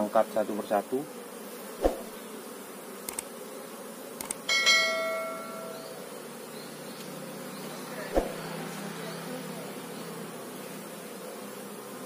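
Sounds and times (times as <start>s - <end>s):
bees buzzing: 0.0s - 12.0s
short clicks: 3.0s - 3.3s, 4.2s - 4.5s
bell ding: 4.5s - 5.8s.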